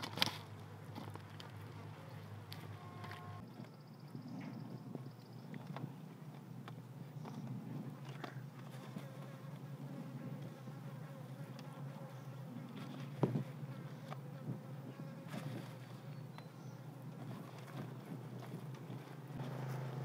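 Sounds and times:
fly buzzing: 8.2 - 16.2.

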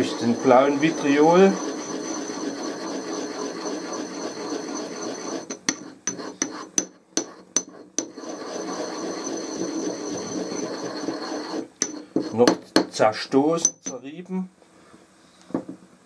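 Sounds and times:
pestle grinding in a mortar: 0.0 - 12.8.

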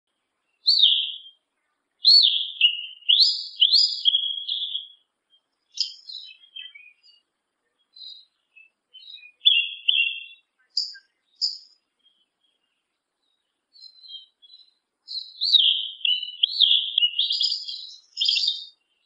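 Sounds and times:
scratchy bird twittering: 0.6 - 1.3, 2.0 - 5.0, 5.7 - 7.1, 9.0 - 11.7, 13.8 - 18.7
thrush whistled song: 0.6 - 1.4, 2.0 - 12.7, 13.7 - 19.0.

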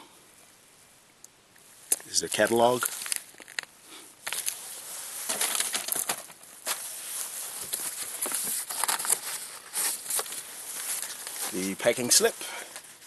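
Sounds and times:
paper and cardboard rustling: 4.2 - 13.0.

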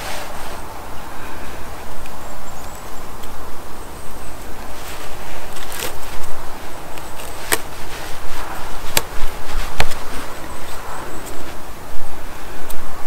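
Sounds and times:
rustling: 0.0 - 2.2, 4.0 - 12.2.

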